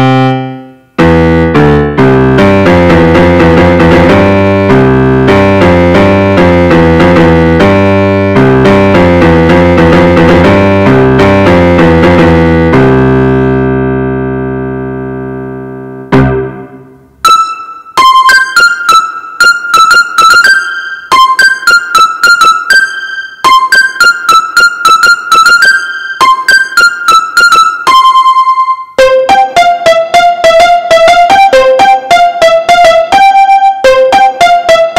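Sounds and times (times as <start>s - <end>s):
keyboard piano low chord: 0.0s - 17.0s
quick high piano melody: 0.0s - 34.9s.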